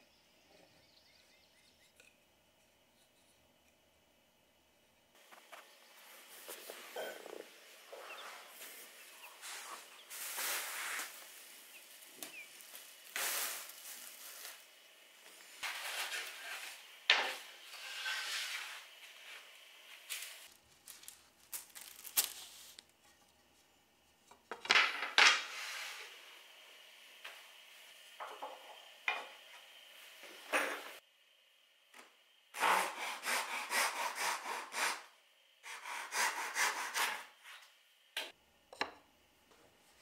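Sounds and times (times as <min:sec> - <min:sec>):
hand saw cutting wood: 0:32.6 - 0:35.0, 0:35.6 - 0:37.3.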